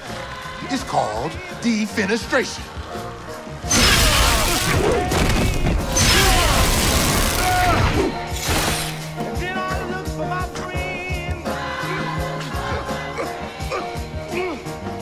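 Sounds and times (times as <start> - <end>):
dramatic film music: 0.0 - 15.0
window glass breaking: 3.7 - 7.7.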